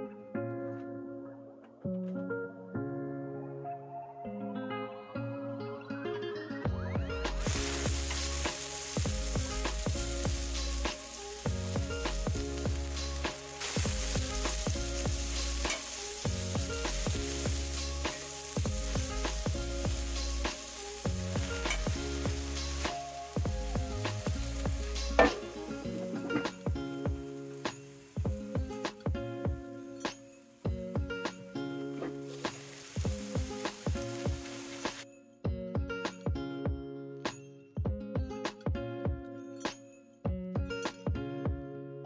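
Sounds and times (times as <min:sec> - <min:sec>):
vegetables sizzling in skillet: 0:07.4 - 0:29.1, 0:31.4 - 0:35.0.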